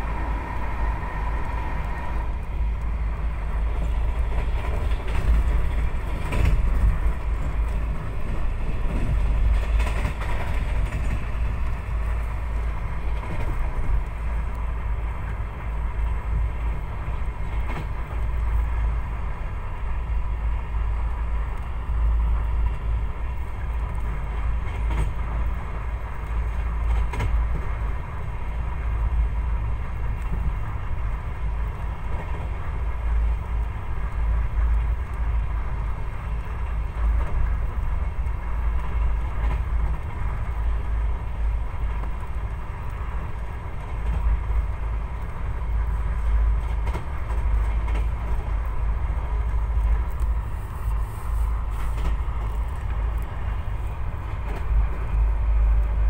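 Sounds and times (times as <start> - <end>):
train low rumble: 0.0 - 56.0
faint steady whine: 48.5 - 56.0.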